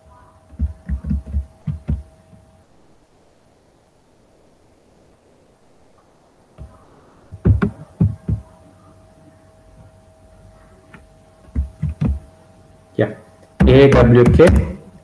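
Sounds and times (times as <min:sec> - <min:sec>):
faint steady hum: 0:00.0 - 0:15.0
soft knocks: 0:06.6 - 0:08.5, 0:11.4 - 0:12.3.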